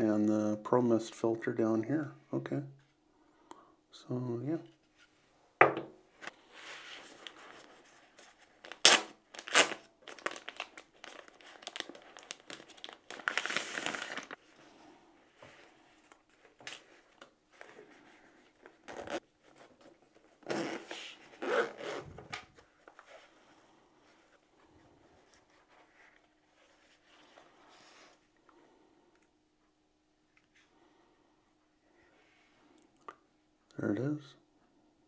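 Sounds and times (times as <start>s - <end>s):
paper packaging crinkling: 6.5s - 14.7s.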